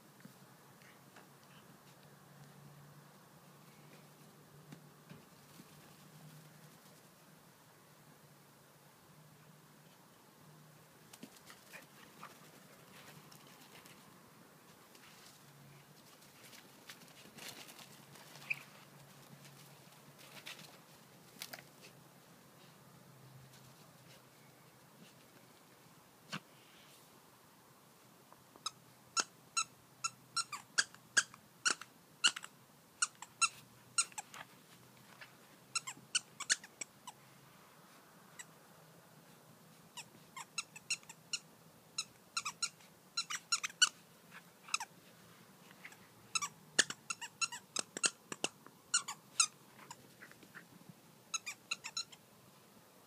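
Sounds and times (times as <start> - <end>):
squeaky toy squeaking: 28.6 - 34.3, 35.7 - 37.2, 39.9 - 44.0, 44.7 - 44.9, 45.9 - 50.0, 51.3 - 52.2.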